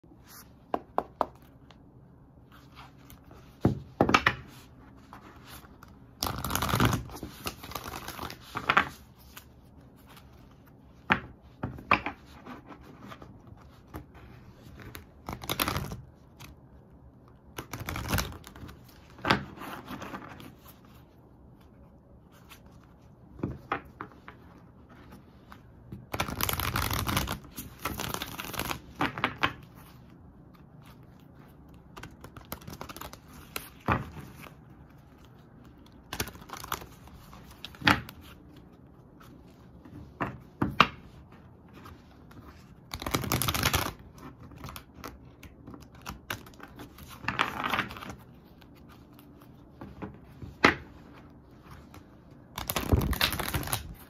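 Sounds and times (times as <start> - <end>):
cards riffling and sliding: 30.6 - 38.6, 41.8 - 50.0, 51.7 - 54.0.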